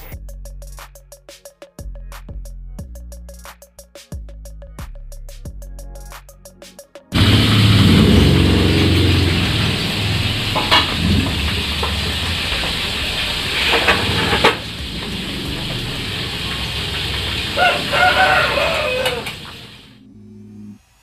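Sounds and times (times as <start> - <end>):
rooster crowing: 7.2 - 19.9
background hum: 7.2 - 21.0
short sharp rooster calls: 17.2 - 19.9.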